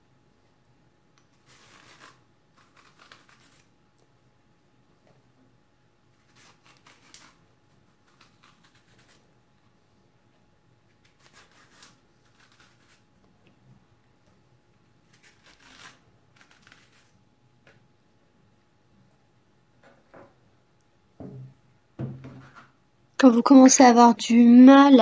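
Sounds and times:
vegetable peeler scraping: 1.3s - 3.7s, 6.2s - 7.4s, 8.0s - 9.2s, 10.9s - 13.0s, 15.0s - 17.2s.

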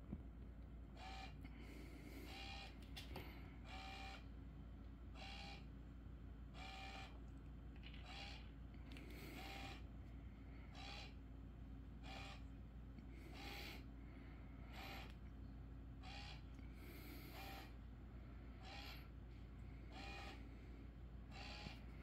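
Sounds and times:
steady low hum: 0.0s - 22.0s
small motor whirring: 9.1s - 9.8s, 14.7s - 15.2s, 19.9s - 20.4s.

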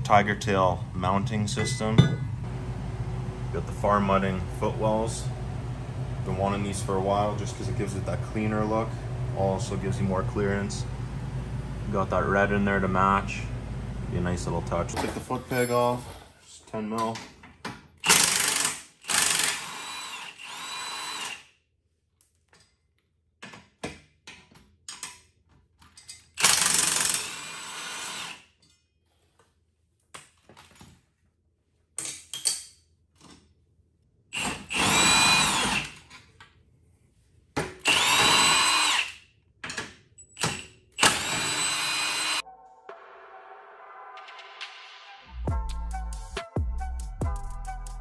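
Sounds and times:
cordless drill motor: 18.0s - 21.4s, 26.4s - 28.4s, 34.4s - 36.0s, 37.8s - 39.2s, 41.0s - 42.4s
metal parts clicking and knocking: 32.0s - 33.4s.

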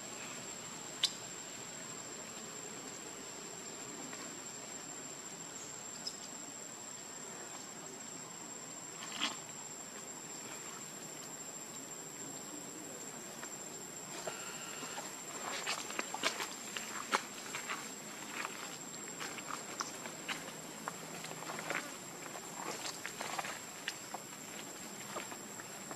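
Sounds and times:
soft outdoor hiss: 0.0s - 25.9s
high-pitched insect drone: 14.1s - 15.8s.

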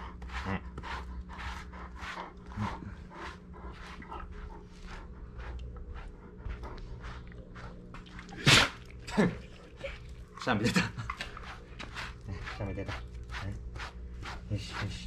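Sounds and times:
dog panting: 0.0s - 8.2s.

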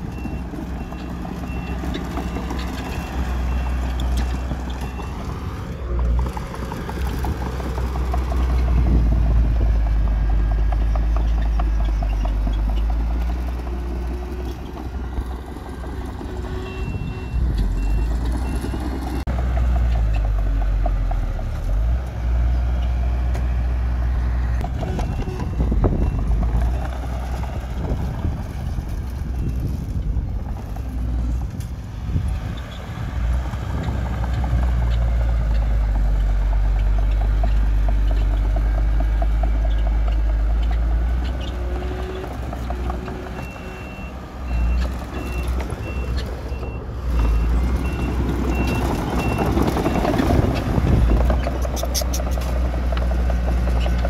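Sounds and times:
heavy diesel machinery engine rumble: 0.0s - 54.0s
reversing alarm beeping: 16.3s - 18.9s, 43.3s - 50.3s.

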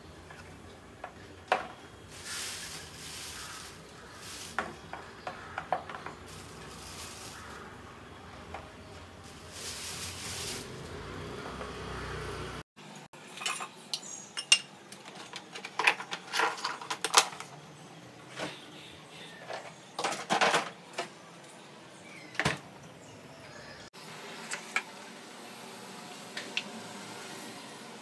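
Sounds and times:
steady hiss: 2.0s - 4.8s, 9.2s - 11.1s.

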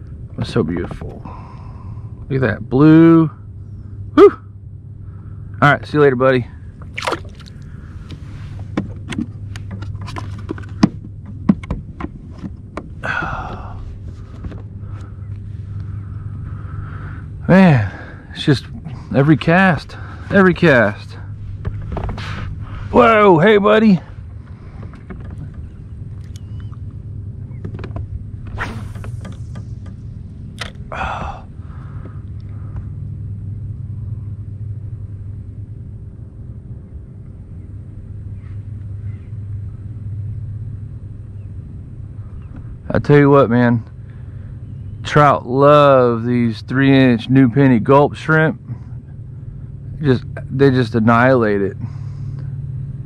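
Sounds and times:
low steady hum: 0.0s - 53.0s
wind rumble on microphone: 18.6s - 45.5s
breathy puff: 22.1s - 22.9s, 30.9s - 32.9s.

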